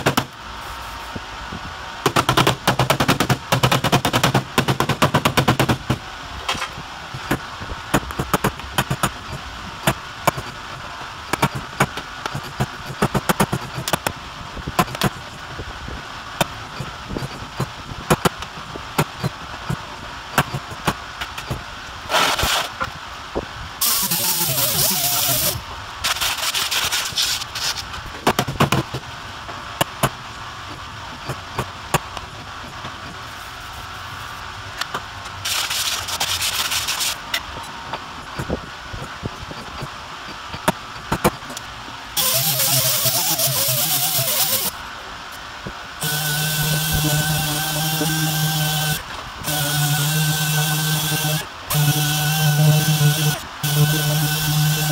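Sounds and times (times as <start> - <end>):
pneumatic air hammer: 2.1 - 10.6, 11.3 - 14.1, 20.4 - 22.9, 23.8 - 29.0, 42.2 - 44.8, 46.0 - 54.9.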